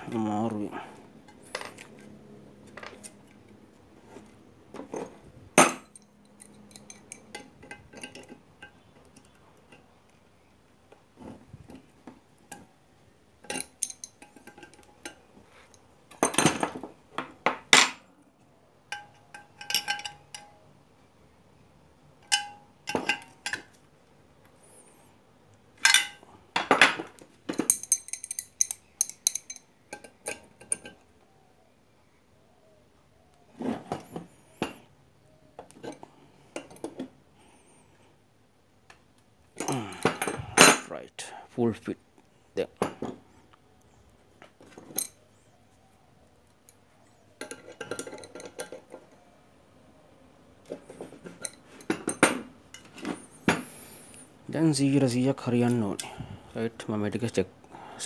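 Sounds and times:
metal parts clinking: 4.9s - 9.4s, 13.4s - 16.8s, 18.9s - 20.6s, 22.2s - 23.7s, 25.8s - 31.0s.

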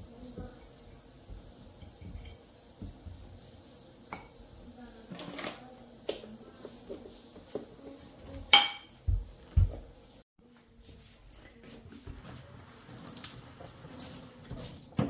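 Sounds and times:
dishes and cutlery clinking: 1.8s - 2.5s, 4.1s - 4.4s, 8.3s - 9.9s.

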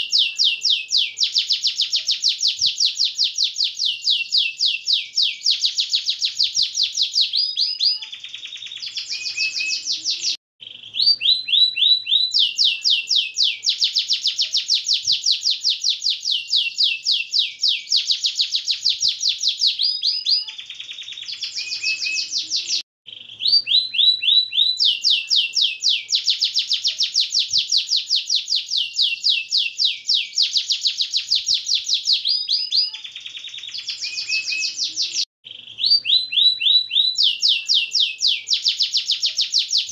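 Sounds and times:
canary singing trills: 0.0s - 39.9s.

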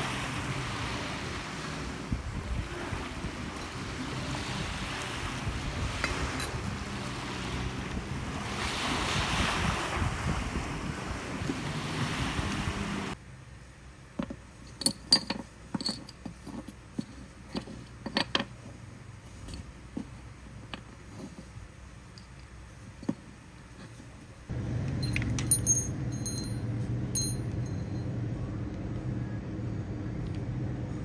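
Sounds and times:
sea waves washing: 0.0s - 13.2s
wind buffeting microphone: 2.0s - 13.2s.

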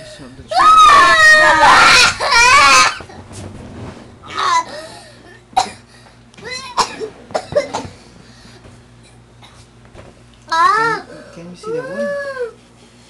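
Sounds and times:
boy crying in pain: 0.5s - 3.0s, 10.5s - 12.6s
boy sobbing and coughing: 4.6s - 5.9s, 6.5s - 8.0s.

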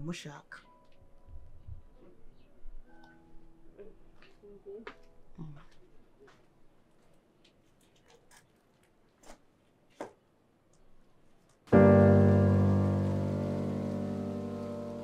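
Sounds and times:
keyboard chord held: 11.7s - 15.0s.

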